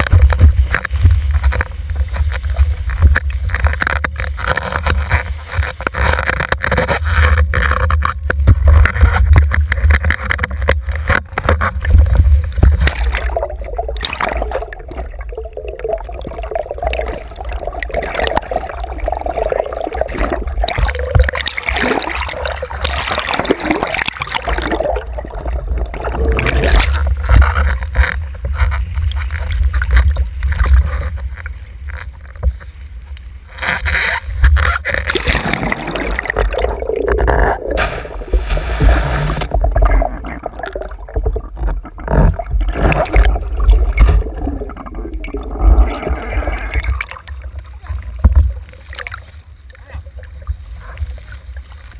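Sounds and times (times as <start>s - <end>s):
wind rumble: 0.0s - 21.4s
muffled underwater gurgling: 0.0s - 51.9s
rushing water: 0.0s - 51.9s.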